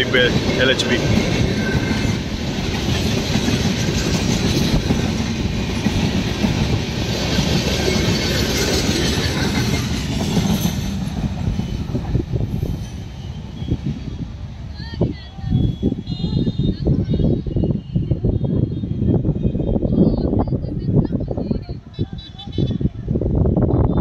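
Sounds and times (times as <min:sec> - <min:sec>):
train wheels on rails: 0:00.0 - 0:16.3.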